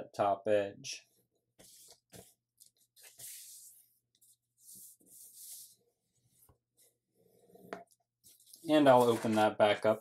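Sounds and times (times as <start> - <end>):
paper rustling and sliding: 1.6 - 6.6, 8.2 - 10.0.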